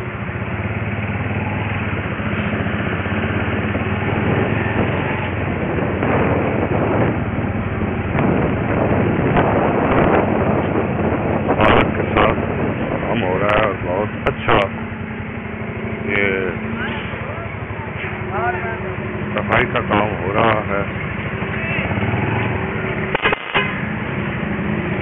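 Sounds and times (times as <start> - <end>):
vehicle engine hum and road noise: 0.0 - 25.0
sharp clicks: 23.1 - 23.7.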